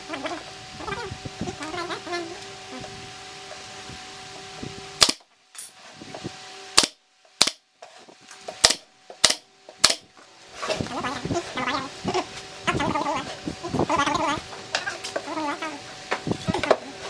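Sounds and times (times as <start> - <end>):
nail gun firing: 5.0 - 5.2, 6.8 - 7.6, 8.6 - 10.1.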